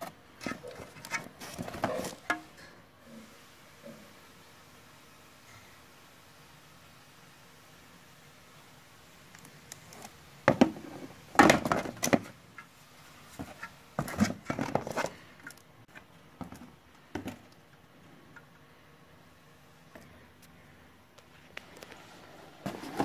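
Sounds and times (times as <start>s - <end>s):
cardboard box rustling and scraping: 0.4s - 2.2s, 13.4s - 15.2s, 21.8s - 23.0s.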